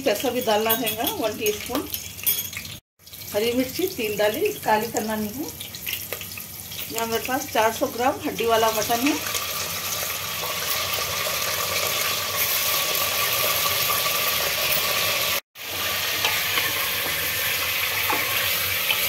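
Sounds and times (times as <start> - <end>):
meat sizzling in hot oil: 1.5 - 19.0.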